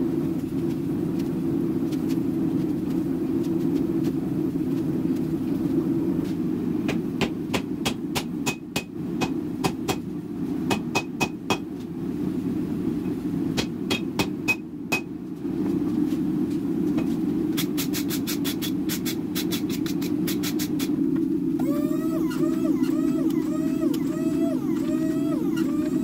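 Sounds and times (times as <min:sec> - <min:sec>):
hammer striking steel on anvil: 0:08.2 - 0:09.4.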